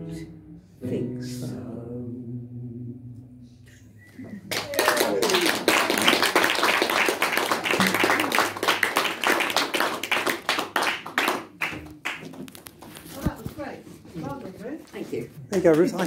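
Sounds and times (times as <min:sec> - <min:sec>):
audience applauding: 0:04.4 - 0:12.9.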